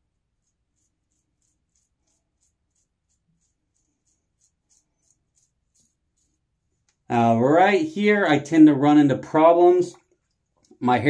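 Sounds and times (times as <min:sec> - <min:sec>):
razor scraping stubble: 0:00.1 - 0:07.2.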